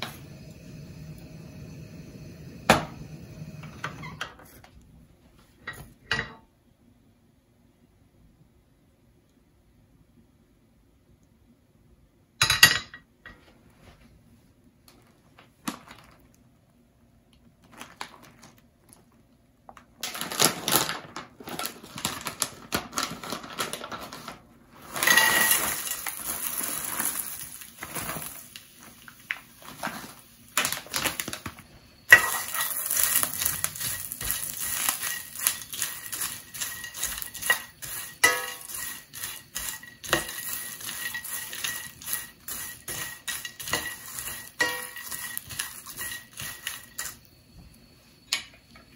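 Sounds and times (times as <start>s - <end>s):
dried shrimp rattling in pan: 20.0s - 47.3s
spatula scraping steel pan: 32.1s - 47.2s
pan knocking on burner grate: 32.2s - 47.1s.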